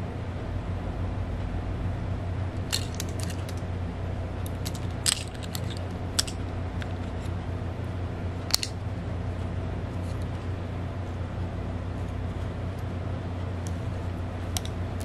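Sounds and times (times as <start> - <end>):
steady low hum: 0.0 - 15.0
plastic housing clicks and snaps: 2.7 - 3.6, 4.5 - 7.0, 8.5 - 8.8.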